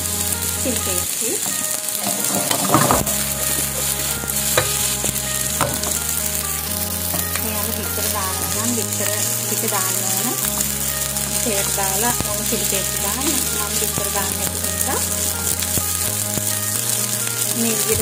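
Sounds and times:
food sizzling in frying pan: 0:00.0 - 0:18.0
spatula tapping and scraping pan: 0:02.0 - 0:06.0.

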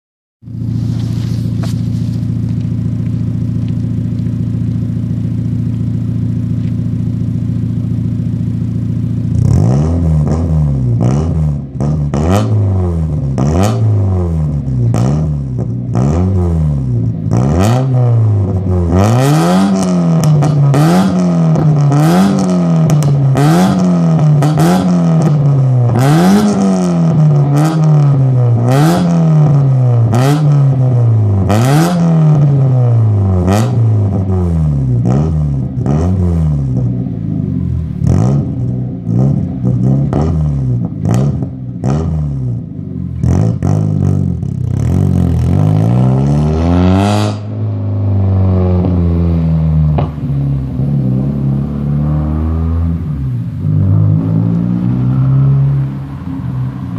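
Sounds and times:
exhaust backfire pops and bangs: 0:00.5 - 0:32.5, 0:38.0 - 0:46.2, 0:49.9 - 0:50.4
engine revving in blips: 0:00.5 - 0:56.9.

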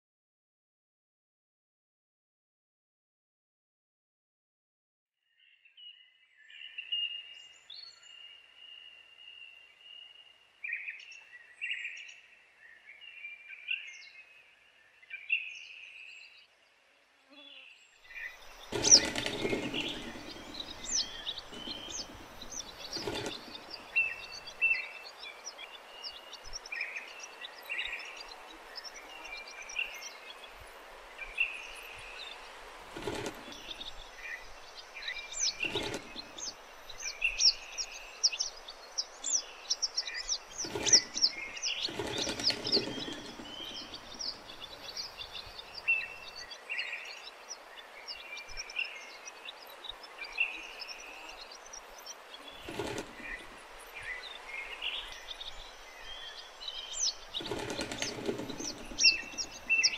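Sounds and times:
swallows twittering: 0:18.1 - 0:59.9.

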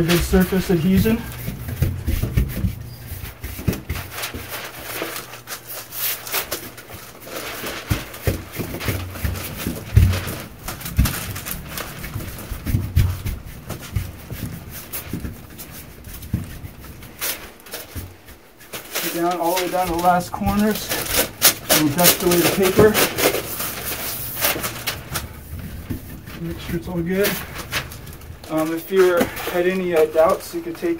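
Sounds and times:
hand rubbing metal door: 0:00.0 - 0:06.9.

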